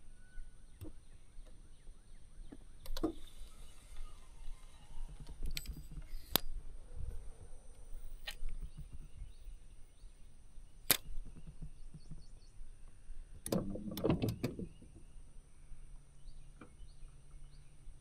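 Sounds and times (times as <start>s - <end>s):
faint bird chirps: 0.0s - 13.4s
sharp click: 10.8s - 12.2s.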